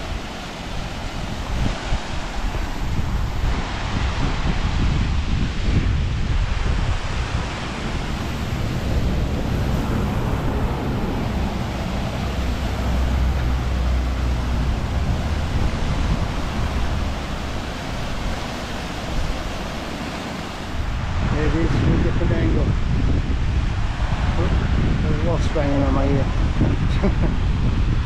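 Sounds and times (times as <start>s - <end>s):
stream waterfalls rushing: 0.0s - 22.3s
wind buffeting microphone: 0.0s - 28.0s.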